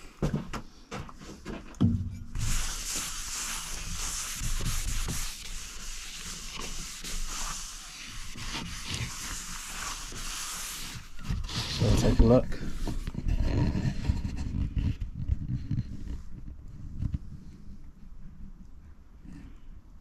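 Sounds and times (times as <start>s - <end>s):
cloth rubbing on wood: 1.9s - 16.3s.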